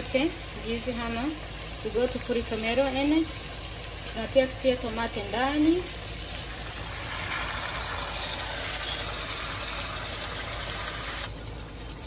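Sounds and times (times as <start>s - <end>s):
food sizzling in frying pan: 2.5s - 11.3s.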